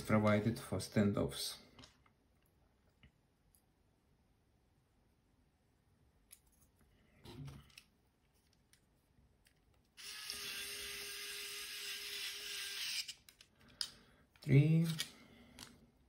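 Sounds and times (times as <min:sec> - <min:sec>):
electric screwdriver motor running: 0:10.0 - 0:13.2.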